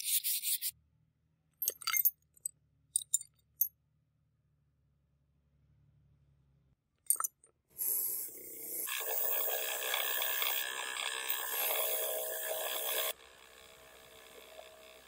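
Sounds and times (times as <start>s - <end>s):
metal clink: 1.6s - 3.7s.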